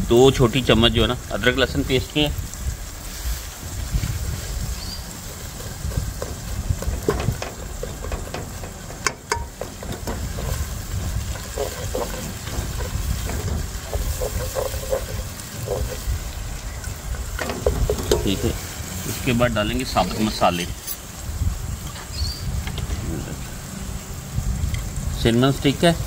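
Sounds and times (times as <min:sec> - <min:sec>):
onions sizzling in hot oil: 0:00.0 - 0:26.0
steady low rumble: 0:02.2 - 0:25.3
spatula scraping a pot: 0:04.3 - 0:21.0
sharp knocks: 0:05.9 - 0:10.5.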